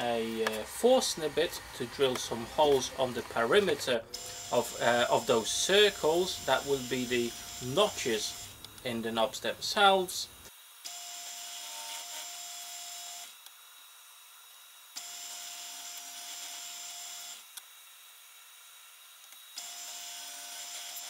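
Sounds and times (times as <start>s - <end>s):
drill press cutting plywood: 0.0s - 8.6s, 19.3s - 21.0s.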